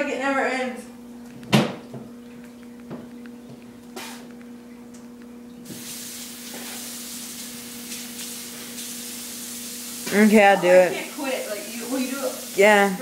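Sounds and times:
steady low hum: 0.0 - 13.0
steady hiss: 5.6 - 13.0.

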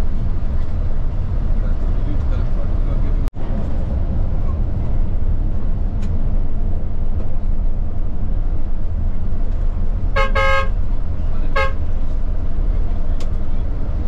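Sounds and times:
bus engine rumbling: 0.0 - 14.0
vehicle horn: 10.1 - 10.8, 11.5 - 11.9.

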